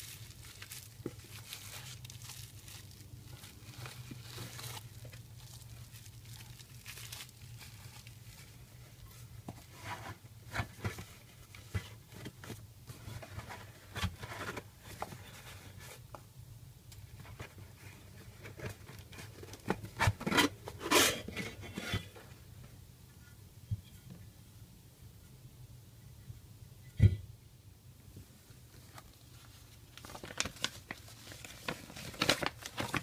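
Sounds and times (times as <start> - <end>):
bubble wrap crinkling: 0.0 - 15.8, 28.7 - 33.0
parts scraping cardboard box: 18.4 - 22.1.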